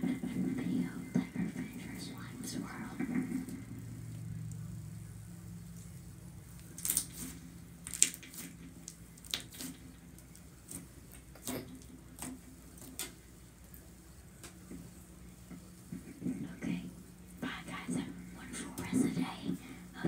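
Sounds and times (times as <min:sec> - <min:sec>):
faint steady hum: 0:00.0 - 0:20.0
slime squished by hand: 0:06.5 - 0:13.2.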